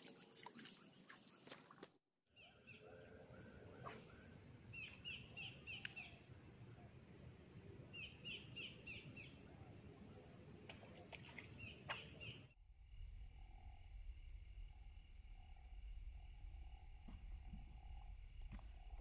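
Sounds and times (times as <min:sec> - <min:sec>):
bird chirping: 0:02.4 - 0:07.1, 0:07.8 - 0:12.6
faint low rumble: 0:12.6 - 0:19.0.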